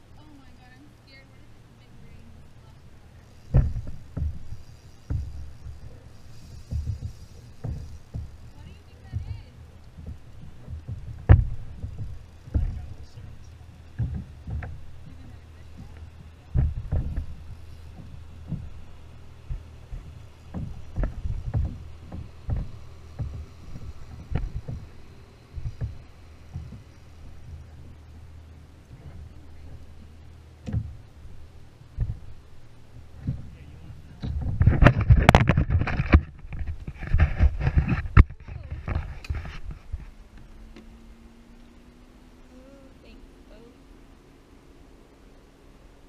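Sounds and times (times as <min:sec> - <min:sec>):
low rumble: 0:00.0 - 0:46.0
knocks and thumps on a kayak: 0:03.3 - 0:40.2.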